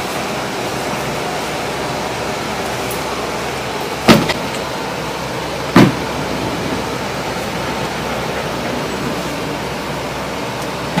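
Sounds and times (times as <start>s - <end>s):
steady background hiss: 0.0s - 11.0s
sharp knocks: 4.1s - 4.4s, 5.7s - 6.0s.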